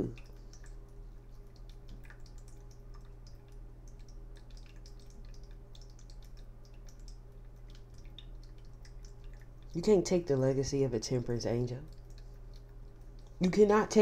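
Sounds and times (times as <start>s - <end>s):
low electrical hum: 0.0s - 14.0s
faint small clicks: 0.2s - 9.8s.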